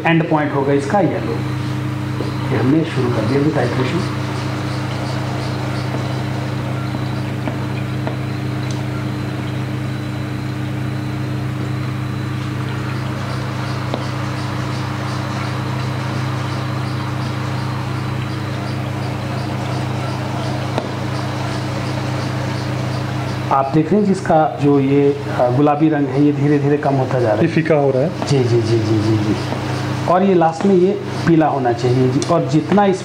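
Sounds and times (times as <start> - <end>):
machine hum with hiss: 0.0 - 33.0.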